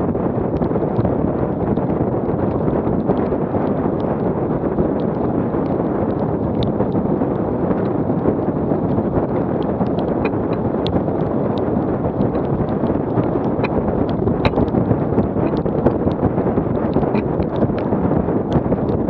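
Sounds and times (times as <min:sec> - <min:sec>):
water rushing along hull: 0:00.0 - 0:19.0
wind buffeting microphone: 0:00.0 - 0:19.0.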